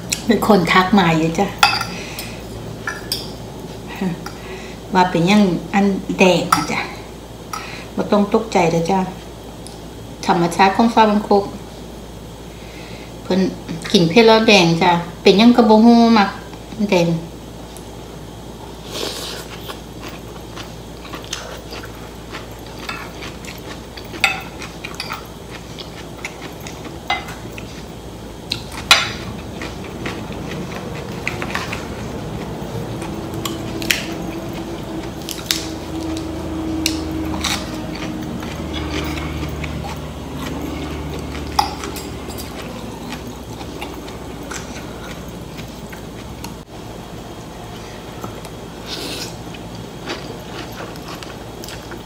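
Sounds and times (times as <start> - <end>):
slurping and chewing noodles: 18.8 - 27.9, 28.5 - 46.5
low hum: 23.0 - 48.8.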